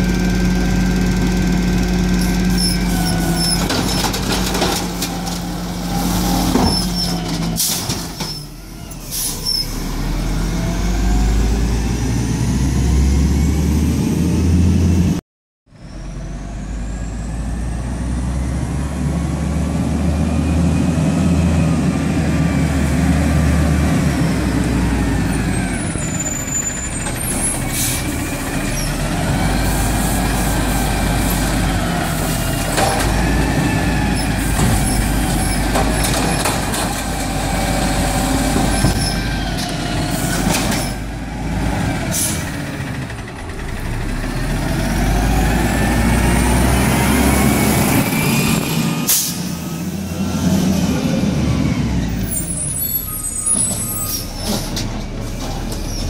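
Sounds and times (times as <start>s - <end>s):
garbage truck engine running: 0.0s - 8.8s, 23.9s - 56.0s
cart knocks and clatters: 3.4s - 5.5s, 34.6s - 37.4s.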